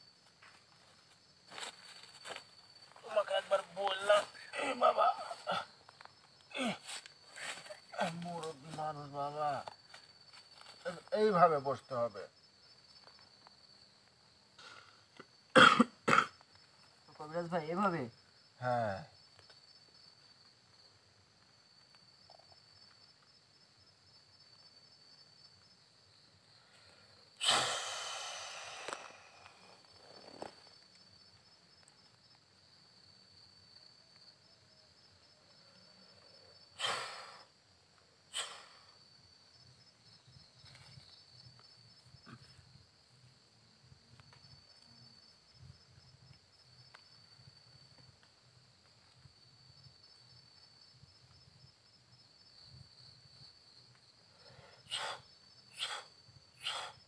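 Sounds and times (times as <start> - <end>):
crickets trilling: 0.0 - 57.0
breathy rushes of air: 27.4 - 29.8.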